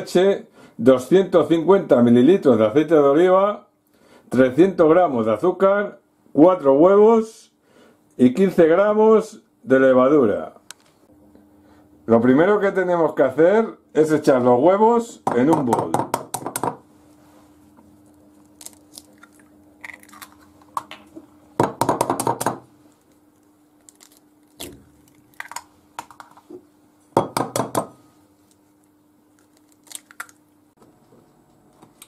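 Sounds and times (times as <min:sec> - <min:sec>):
faint steady hum: 0:00.0 - 0:32.0
eggs cracking into glass bowl: 0:18.6 - 0:22.6, 0:23.8 - 0:26.4, 0:29.4 - 0:30.5.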